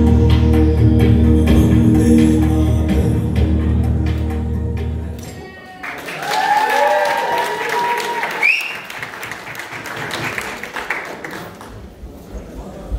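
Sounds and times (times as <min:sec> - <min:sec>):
whooping voices: 0:05.4 - 0:09.0
audience applauding and cheering: 0:05.4 - 0:12.0.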